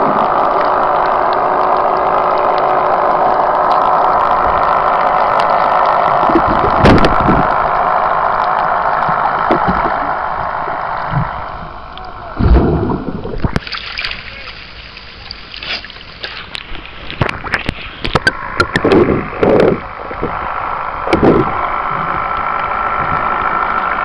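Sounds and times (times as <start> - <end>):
boat engine hum underwater: 0.0 - 24.0.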